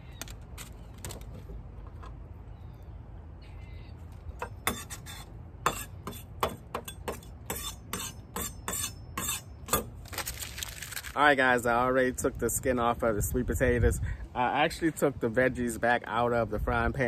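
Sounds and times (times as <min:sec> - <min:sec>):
aluminium foil crinkling: 0:10.0 - 0:11.2.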